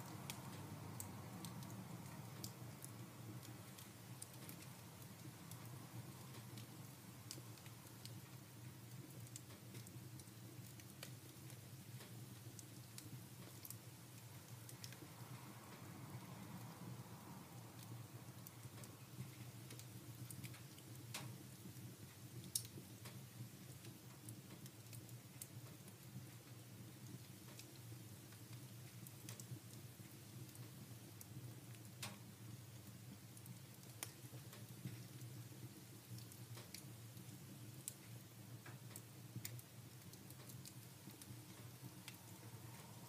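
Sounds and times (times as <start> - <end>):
wood fire crackling: 0.0 - 43.0
low steady hum: 39.5 - 43.0.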